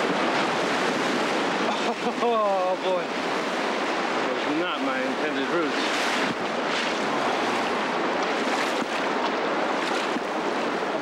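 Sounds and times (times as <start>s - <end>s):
river rapids rushing: 0.0s - 11.0s.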